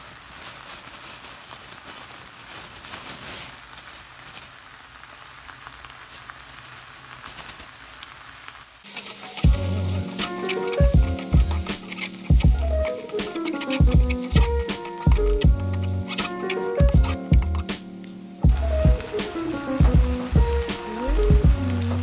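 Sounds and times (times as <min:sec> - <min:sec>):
sauce simmering and sizzling: 0:04.0 - 0:22.0
background music with a beat: 0:09.4 - 0:22.0.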